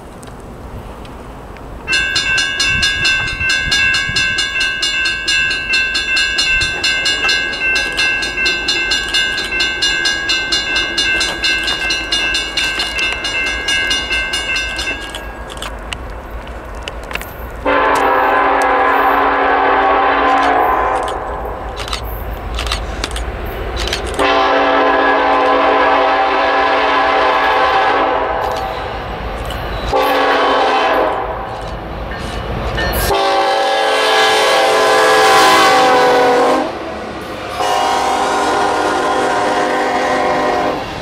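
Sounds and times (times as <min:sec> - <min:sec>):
locomotive air horn pulsing: 0:17.6 - 0:21.4, 0:24.2 - 0:28.7, 0:29.9 - 0:31.5, 0:33.0 - 0:36.8, 0:37.4 - 0:40.9
lower-pitched horn: 0:17.7 - 0:21.3, 0:24.2 - 0:28.8, 0:29.9 - 0:31.5, 0:33.0 - 0:36.8, 0:37.4 - 0:40.9.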